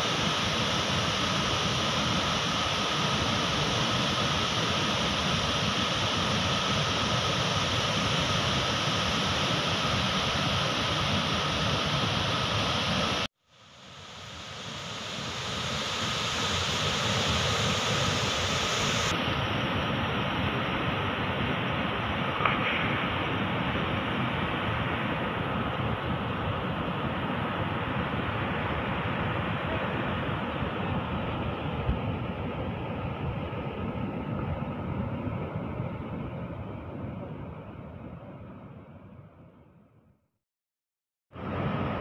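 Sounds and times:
water rushing over boulders: 0:22.0 - 0:33.4.

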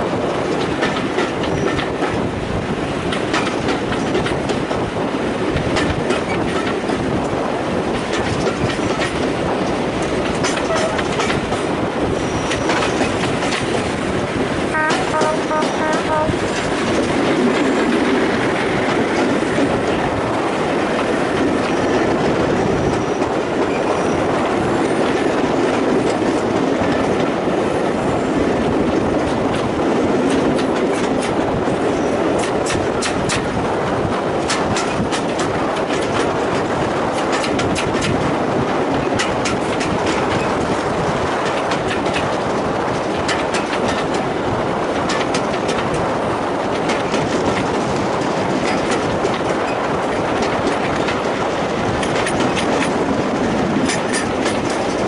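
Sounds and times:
train wheels rumbling on rail: 0:00.0 - 0:55.0
clicks over rail joints: 0:03.0 - 0:04.9, 0:05.5 - 0:11.7, 0:29.2 - 0:31.6, 0:32.4 - 0:38.3, 0:38.9 - 0:55.0.

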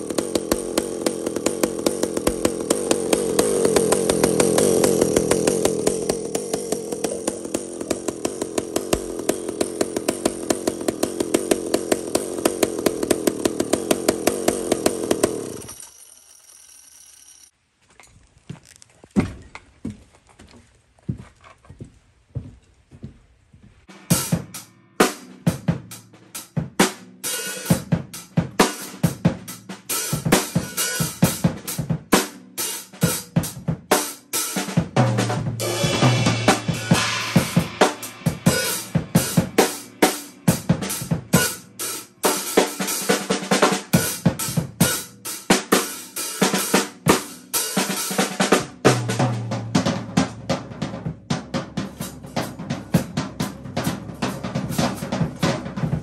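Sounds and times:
drum kit playing fast beat: 0:00.0 - 0:15.7, 0:24.0 - 0:56.0
cymbal crashes: 0:35.6 - 0:43.2.

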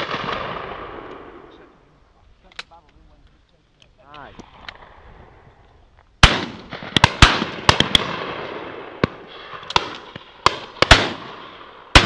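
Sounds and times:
shotguns firing: 0:00.0 - 0:01.5, 0:06.2 - 0:12.0.

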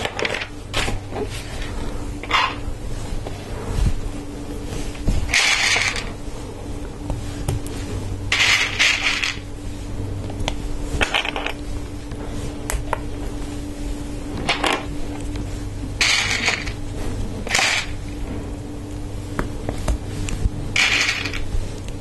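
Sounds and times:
plastic parts clattering and clicking: 0:00.0 - 0:01.0, 0:05.3 - 0:06.1, 0:16.0 - 0:16.8, 0:20.8 - 0:21.4.

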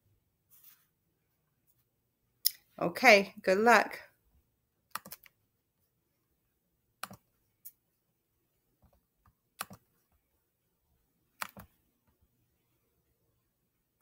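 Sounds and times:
computer mouse clicking: 0:04.9 - 0:05.4, 0:07.0 - 0:07.8, 0:08.8 - 0:09.9, 0:11.4 - 0:11.7.

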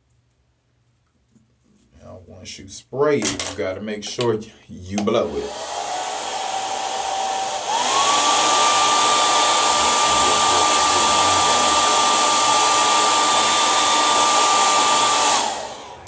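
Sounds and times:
hair dryer blowing: 0:05.2 - 0:16.0.

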